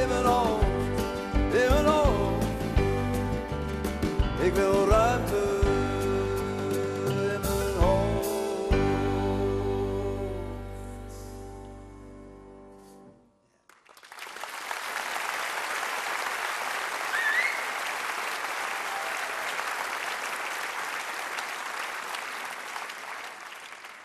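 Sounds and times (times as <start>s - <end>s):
audience applauding: 13.7s - 24.0s
brief whistle: 17.1s - 17.8s.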